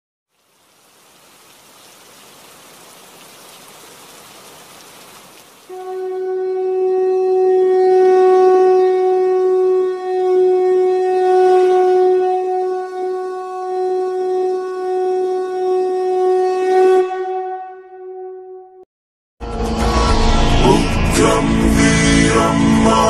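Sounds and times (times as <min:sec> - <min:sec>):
soft rushing hiss: 0:00.3 - 0:05.7
conch shell blown: 0:05.7 - 0:18.8.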